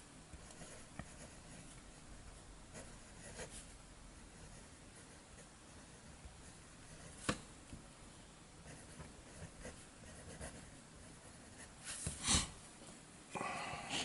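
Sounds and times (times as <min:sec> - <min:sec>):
pen nib scratching on paper: 0:00.4 - 0:02.0, 0:08.6 - 0:12.0.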